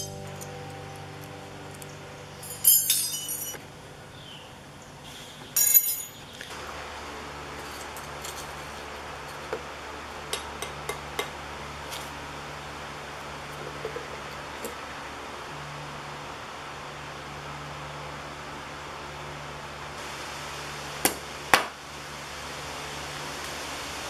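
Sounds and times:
faint hum: 0.0 - 24.0
metal files clattering on concrete: 2.5 - 3.6, 5.6 - 6.2.

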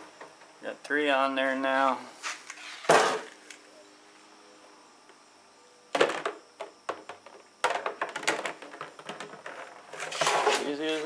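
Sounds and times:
plastic decoys clattering: 6.0 - 11.0.

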